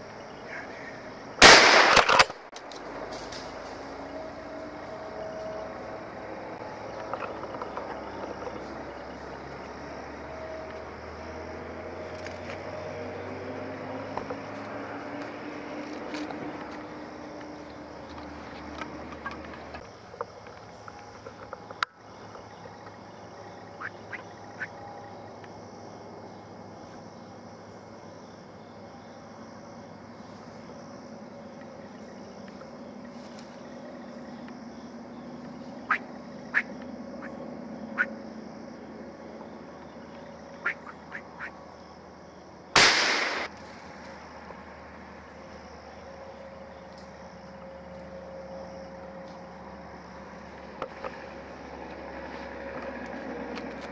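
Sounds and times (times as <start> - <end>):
gunshot with echo: 1.4 - 2.3, 42.8 - 43.5
sharp crack: 1.4 - 3.5, 42.8 - 44.0
squirrel barking: 23.6 - 24.8, 35.7 - 38.2, 40.5 - 41.6
short high calls: 35.8 - 38.2, 40.6 - 41.6.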